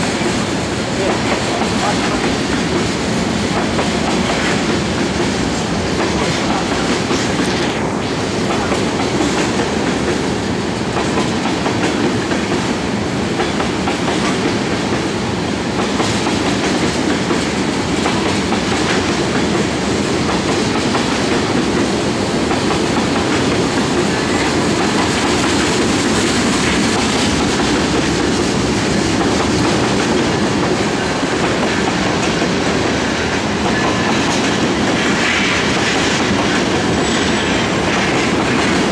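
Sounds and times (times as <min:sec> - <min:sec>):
freight train wheels rumbling: 0:00.0 - 0:38.9.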